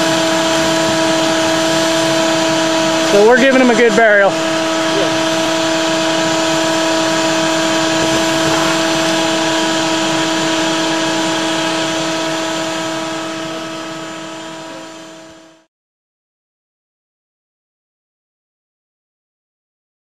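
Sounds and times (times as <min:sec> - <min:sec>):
vacuum running through hose: 0:00.0 - 0:15.7.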